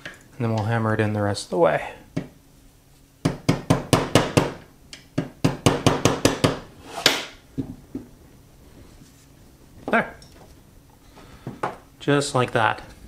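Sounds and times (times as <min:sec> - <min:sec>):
hammer tapping a punch: 0:03.2 - 0:04.6.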